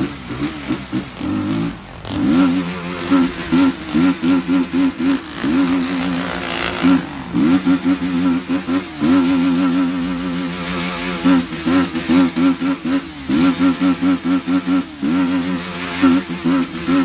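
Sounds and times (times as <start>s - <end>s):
motorcycle engine revving: 0.0s - 17.0s.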